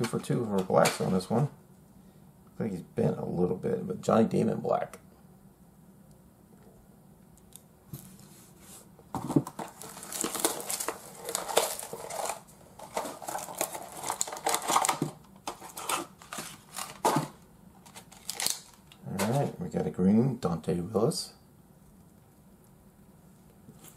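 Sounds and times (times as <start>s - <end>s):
packaging rustling and crackling: 9.2s - 19.5s.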